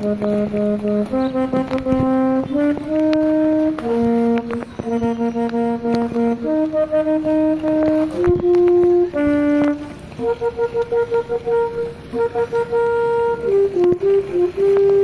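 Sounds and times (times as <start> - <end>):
slow melody of held notes: 0.0 - 15.0.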